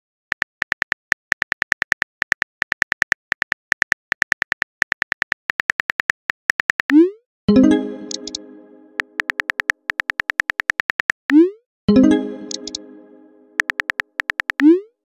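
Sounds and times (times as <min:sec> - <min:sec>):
keyboard typing clicks: 0:07.6 - 0:11.2, 0:12.0 - 0:12.9, 0:13.6 - 0:14.7.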